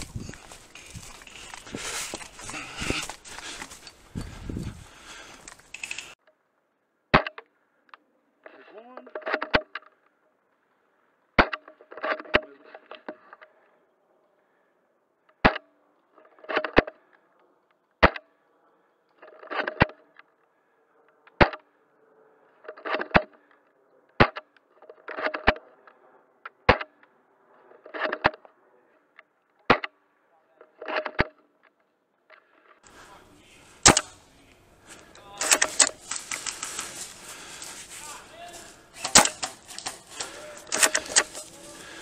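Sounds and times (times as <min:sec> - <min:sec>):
clatter of small clicks: 0:05.4 - 0:06.2
airsoft gun shots: 0:33.8 - 0:34.2, 0:39.0 - 0:40.0.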